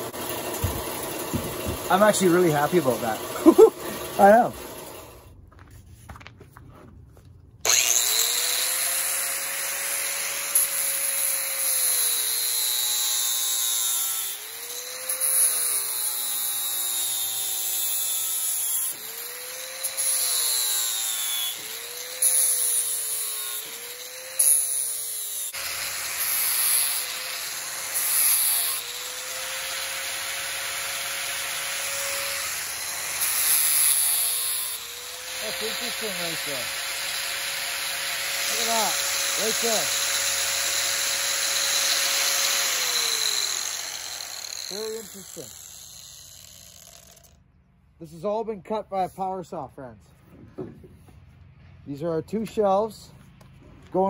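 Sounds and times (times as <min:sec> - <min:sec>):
angle grinder whining: 0:00.0 - 0:05.4, 0:07.6 - 0:47.4
disc scouring wood: 0:38.4 - 0:40.2.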